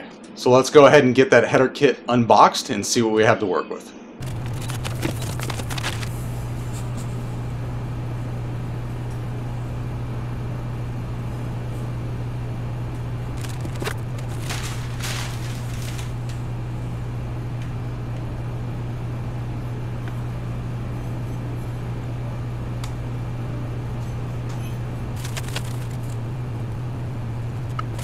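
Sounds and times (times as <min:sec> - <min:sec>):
steady low hum: 0:00.0 - 0:28.0
paper and plastic wrap rustling: 0:04.2 - 0:06.2, 0:13.4 - 0:16.5, 0:25.2 - 0:26.2.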